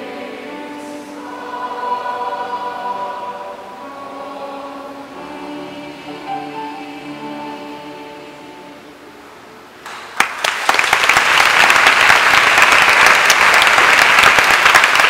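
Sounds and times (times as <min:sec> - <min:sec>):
choir holding a chord: 0:00.0 - 0:09.5
audience applause: 0:09.9 - 0:15.0.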